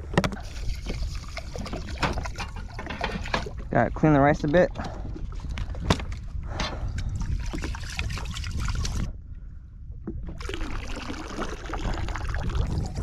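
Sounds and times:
wind and sea rumble: 0.0s - 13.0s
water swishing in a pot: 0.4s - 3.7s.

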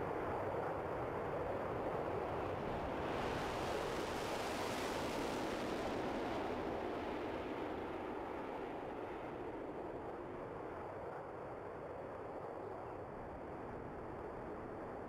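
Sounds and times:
jet engine roar: 2.5s - 9.8s.

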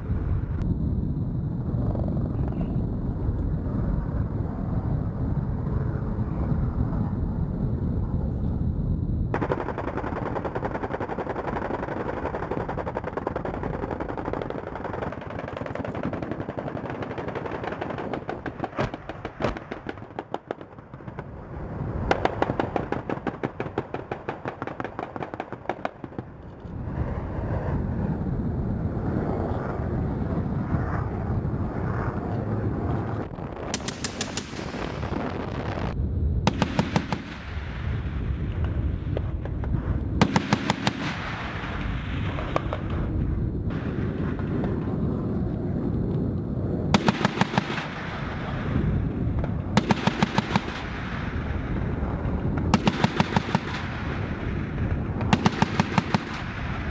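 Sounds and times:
distant helicopter rotor: 0.0s - 56.9s
rotary cannon rapid fire: 9.3s - 21.3s, 22.1s - 26.3s, 33.6s - 38.4s, 40.2s - 43.1s, 46.9s - 56.9s.

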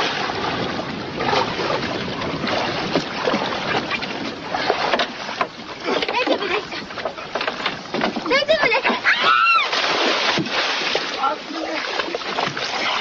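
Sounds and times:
wind on microphone: 0.0s - 8.3s
water sloshing against boat: 0.0s - 13.0s.

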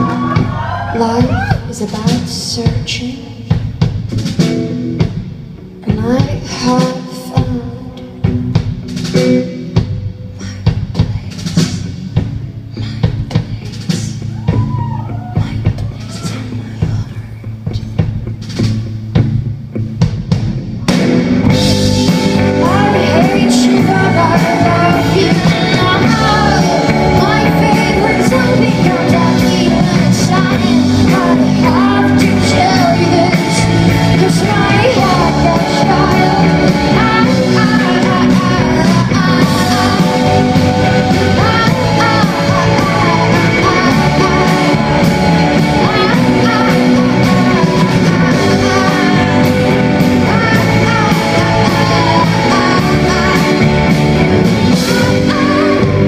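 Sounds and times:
person singing: 0.0s - 3.6s, 20.9s - 56.0s
folk-rock band playing live: 0.0s - 56.0s.

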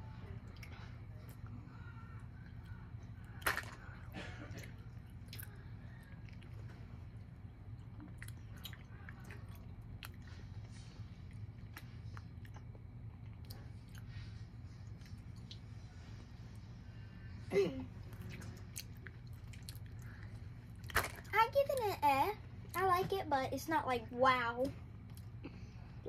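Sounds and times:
low hum: 0.0s - 21.3s
person chewing candy: 4.7s - 10.4s, 11.3s - 14.2s, 18.1s - 21.0s.

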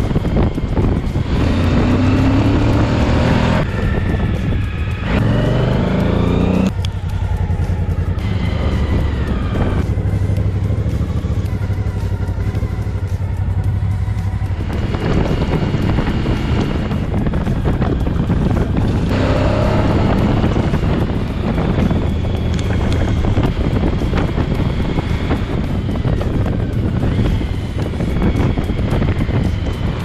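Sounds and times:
motorcycle engine accelerating: 0.0s - 30.0s.

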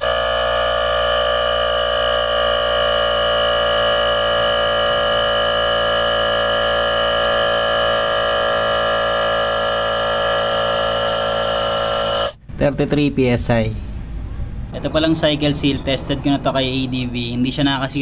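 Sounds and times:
air compressor buzzing hum: 0.0s - 12.4s.

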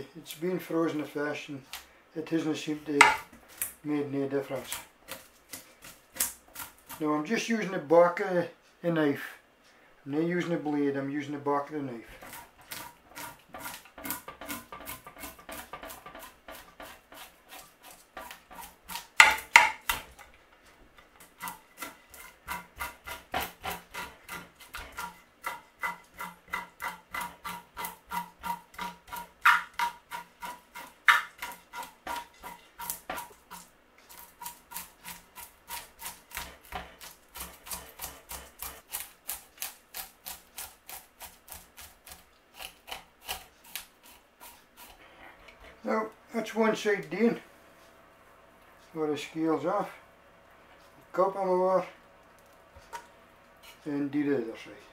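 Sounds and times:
knife scraping fish scales: 12.1s - 20.0s, 21.2s - 45.9s.

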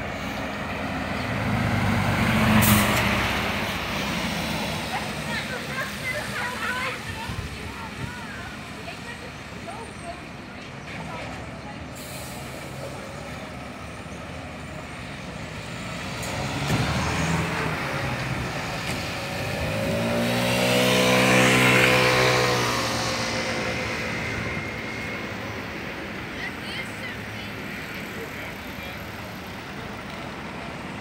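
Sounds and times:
street background noise: 0.0s - 31.0s
motorcycle passing by: 16.0s - 25.6s.

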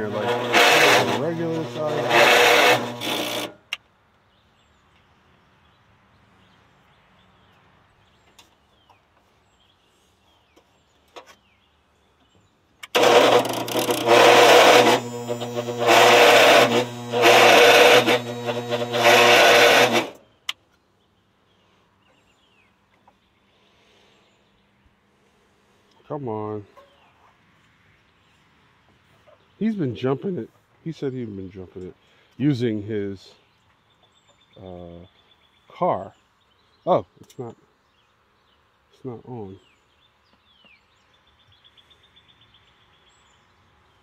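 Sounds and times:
starter cranking engine: 0.0s - 3.6s, 12.8s - 20.2s
faint birdsong: 3.6s - 14.2s, 16.8s - 44.0s.

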